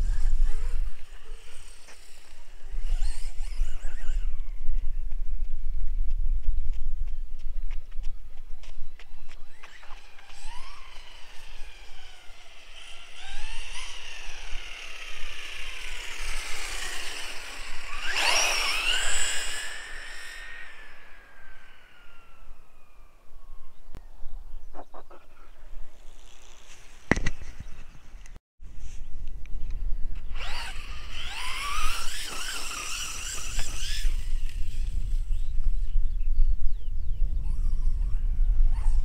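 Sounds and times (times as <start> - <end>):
rc car electric motor whining: 0.0 - 4.6, 9.4 - 23.2, 30.2 - 35.9.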